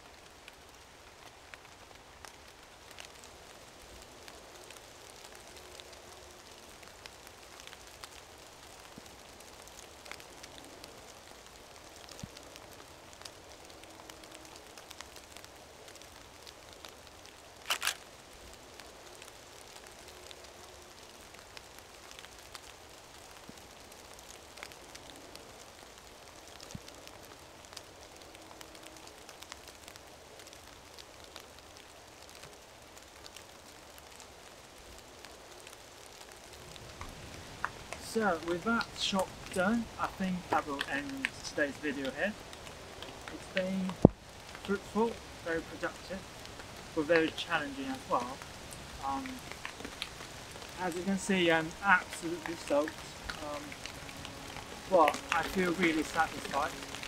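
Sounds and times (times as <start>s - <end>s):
rain pattering on trees: 0.0s - 57.0s
water drips ticking: 35.6s - 57.0s.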